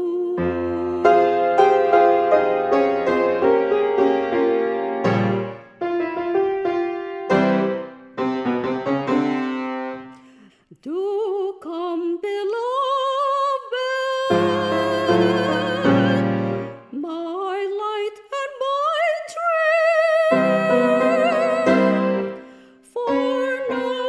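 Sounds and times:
woman singing with vibrato: 0:00.0 - 0:02.2, 0:10.7 - 0:24.0
piano chords: 0:00.3 - 0:10.2, 0:14.2 - 0:16.9, 0:20.1 - 0:24.0.

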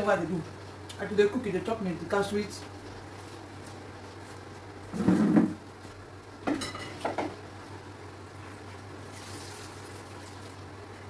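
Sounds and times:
steady low hum: 0:00.0 - 0:11.0
dishes knocking and clattering: 0:05.0 - 0:05.6, 0:06.4 - 0:07.4.

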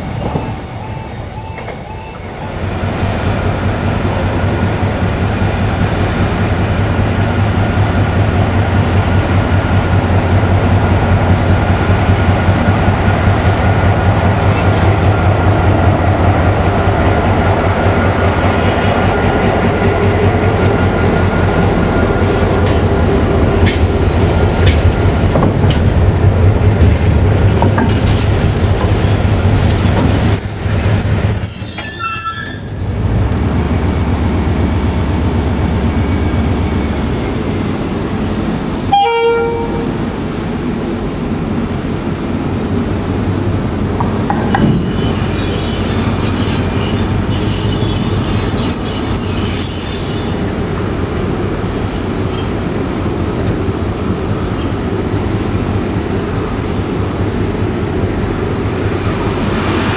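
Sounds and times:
diesel locomotive running under load: 0:00.0 - 0:59.9
wagon wheel squeal: 0:30.2 - 0:32.8, 0:44.0 - 0:50.6, 0:51.8 - 0:58.6.

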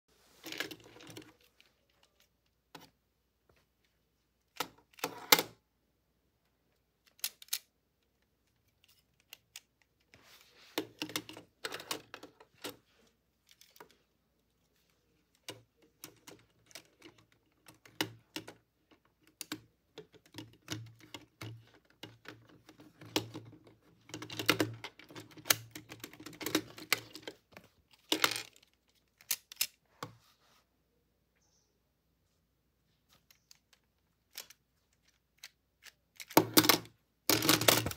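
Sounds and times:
plastic bricks clicking and rattling: 0:33.3 - 0:37.9.

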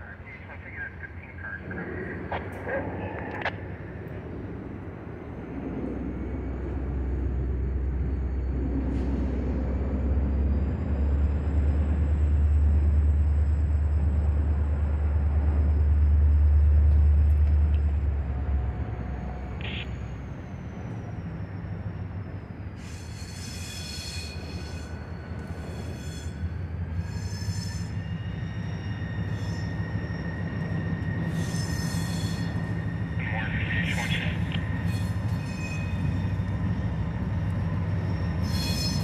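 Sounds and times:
locomotive engine rumble: 0:28.2 - 0:39.0.

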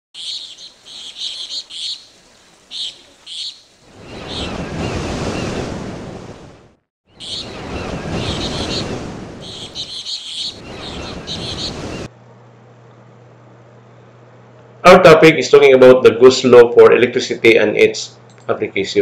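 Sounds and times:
bird chirps: 0:00.2 - 0:04.9, 0:07.1 - 0:12.1.

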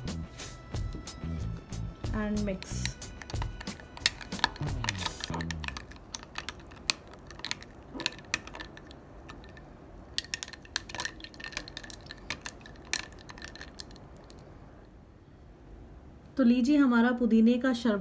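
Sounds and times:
spoon clinking ice in glass: 0:02.6 - 0:14.4.

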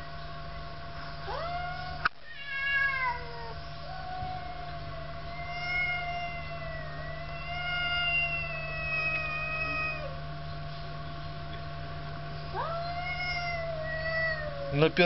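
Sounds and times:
cat yowling: 0:01.2 - 0:10.2, 0:12.5 - 0:15.0.

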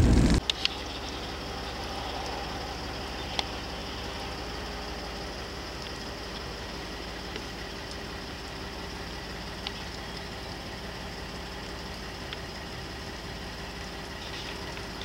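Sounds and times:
faint steady hum: 0:00.0 - 0:15.0
vehicle engine idling: 0:00.0 - 0:15.0
faint sharp clicks: 0:00.3 - 0:00.8, 0:03.3 - 0:03.6, 0:07.3 - 0:08.0, 0:09.6 - 0:10.3.

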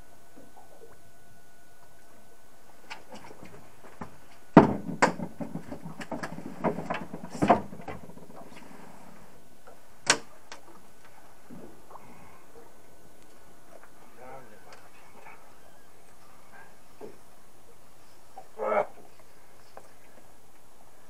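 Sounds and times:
knocks on a fibreglass boat deck: 0:04.0 - 0:08.4.

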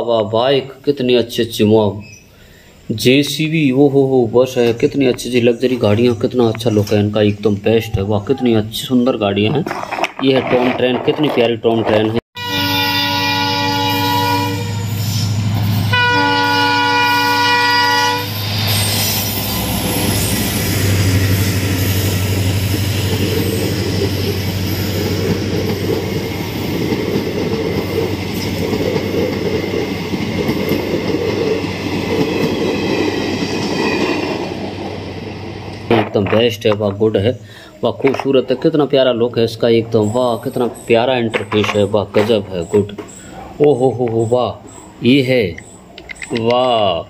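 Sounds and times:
train rumble and wheel clatter: 0:02.9 - 0:47.0
locomotive horn blasts: 0:12.4 - 0:15.0, 0:15.9 - 0:18.4.

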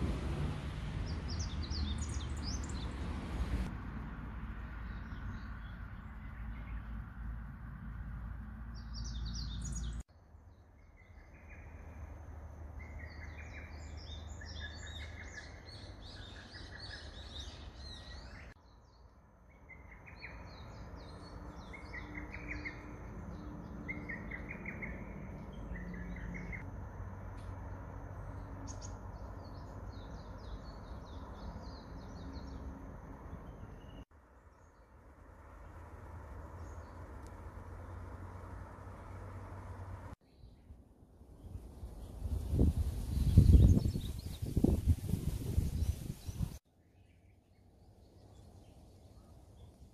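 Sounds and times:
birds chirping: 0:01.0 - 0:03.7.

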